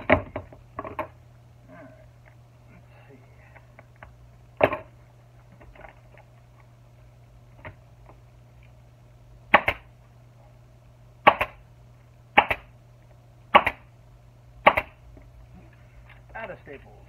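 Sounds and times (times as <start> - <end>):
pneumatic staple gun firing: 13.6 - 13.8.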